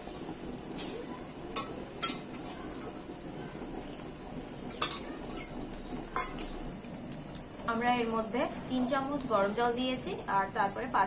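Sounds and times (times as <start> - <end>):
water ladled into pan: 0.0 - 6.7
curry sizzling: 0.0 - 11.0
metal ladle clinking pan: 1.6 - 2.4, 4.8 - 5.5.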